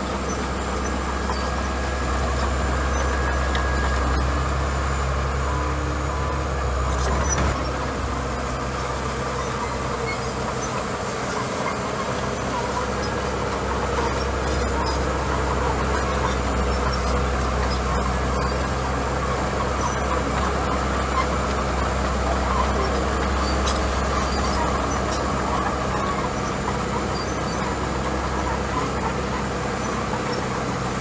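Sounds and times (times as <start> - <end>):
bulldozer diesel engine running: 0.0 - 31.0.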